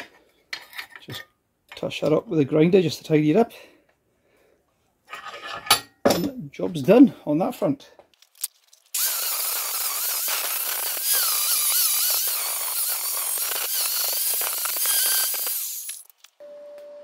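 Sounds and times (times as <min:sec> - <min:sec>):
angle grinder grinding steel: 0:09.0 - 0:16.2.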